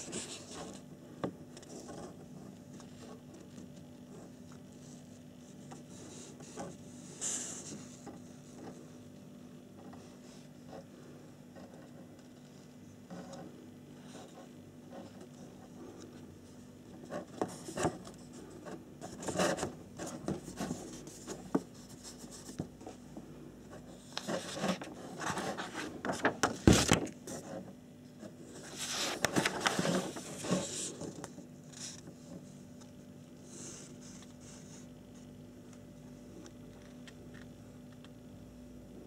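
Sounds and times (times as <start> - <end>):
paper pages rustling: 0.0 - 0.9, 23.8 - 27.6, 28.2 - 35.8.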